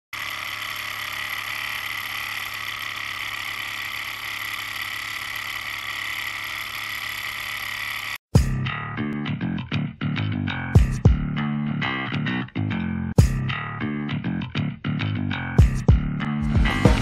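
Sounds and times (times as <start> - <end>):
small engine running: 0.1 - 8.2.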